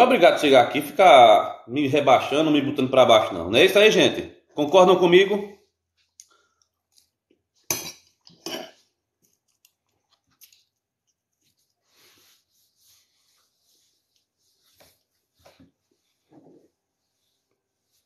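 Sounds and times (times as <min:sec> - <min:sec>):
chewing: 0:09.2 - 0:11.9.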